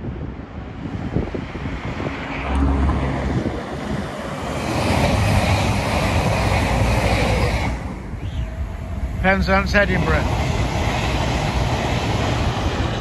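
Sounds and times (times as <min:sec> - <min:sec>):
wind on microphone: 0:00.0 - 0:09.2
train wheels rushing on rail: 0:00.2 - 0:13.0.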